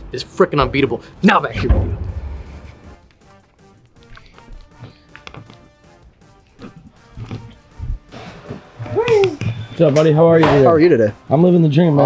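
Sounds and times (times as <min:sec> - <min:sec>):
background music: 0:00.0 - 0:12.0
dull thumps: 0:00.6 - 0:03.0.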